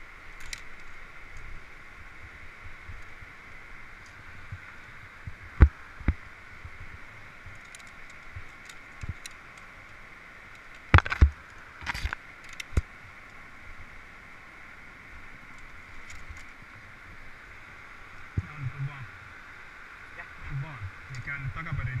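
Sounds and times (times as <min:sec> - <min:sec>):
steady hiss: 0:00.0 - 0:22.0
carabiners clacking on steel cable: 0:00.3 - 0:01.0, 0:07.5 - 0:09.7, 0:11.8 - 0:12.8.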